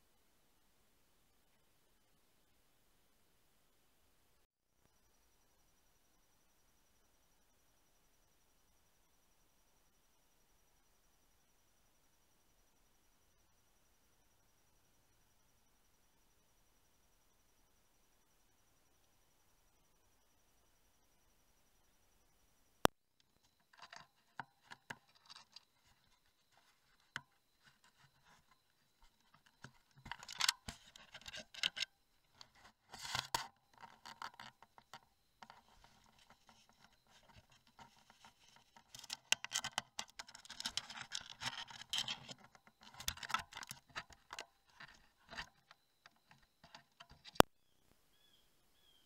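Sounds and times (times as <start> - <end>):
fur scratching against microphone: 32.3 - 34.0.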